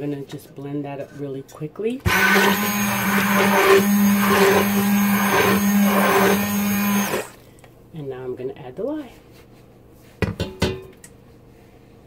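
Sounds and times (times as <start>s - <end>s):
stick blender running in pot: 2.1s - 7.4s.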